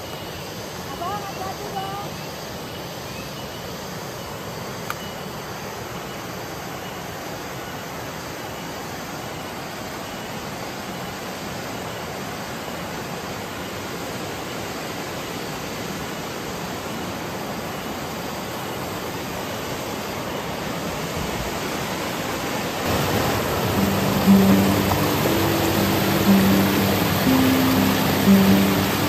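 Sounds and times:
river water rushing: 0:07.3 - 0:29.0
music: 0:23.0 - 0:29.0.

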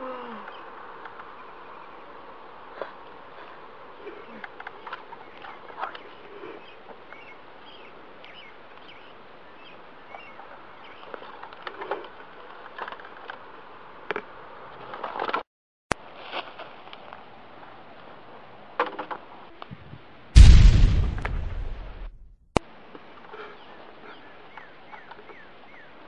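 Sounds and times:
steady hiss: 0:20.4 - 0:22.2.

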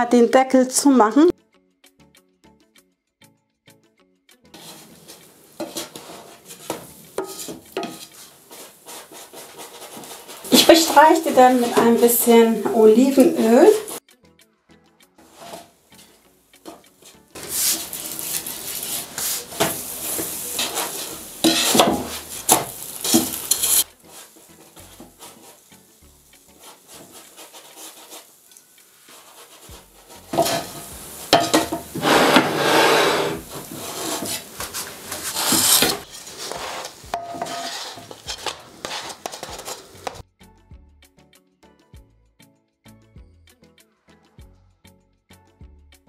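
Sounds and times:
dough sizzling: 0:04.6 - 0:14.0, 0:15.2 - 0:40.2
spatula scraping griddle pan: 0:04.6 - 0:14.0, 0:15.2 - 0:40.2.

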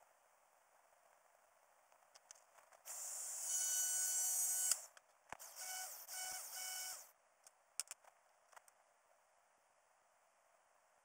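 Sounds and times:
angle grinder whine: 0:02.9 - 0:07.1.

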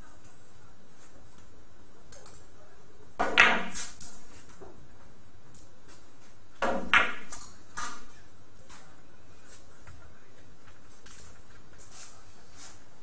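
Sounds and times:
billiard balls clacking: 0:03.2 - 0:03.9.

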